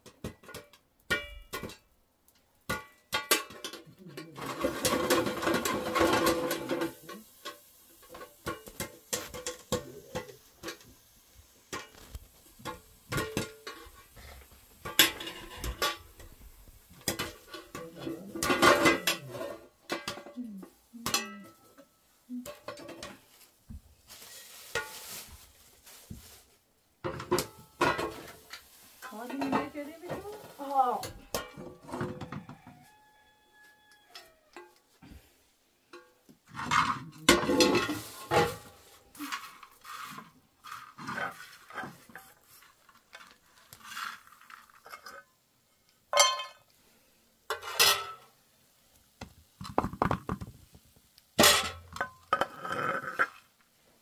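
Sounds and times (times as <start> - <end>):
pans knocking and clattering: 0.0 - 1.9, 2.7 - 11.0, 11.7 - 20.4, 21.0 - 23.3, 27.0 - 32.8, 35.9 - 39.8, 46.1 - 46.6, 47.5 - 48.3, 49.2 - 53.3
metal spoon scraping metal pan: 3.1 - 10.9, 17.0 - 23.2, 47.5 - 48.2.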